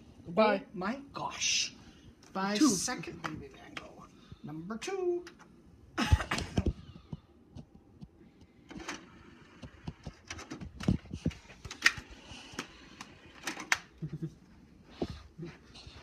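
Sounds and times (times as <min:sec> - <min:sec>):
plastic clicks of discs and cases: 0:09.6 - 0:13.9.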